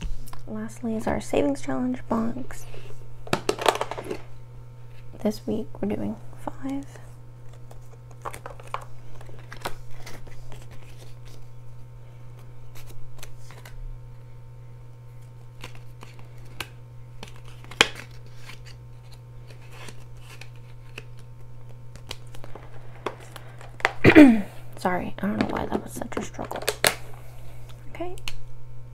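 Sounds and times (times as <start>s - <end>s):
steady low hum: 0.0s - 28.9s
paper rustling and crinkling: 7.4s - 11.5s, 12.7s - 13.8s, 15.2s - 24.0s.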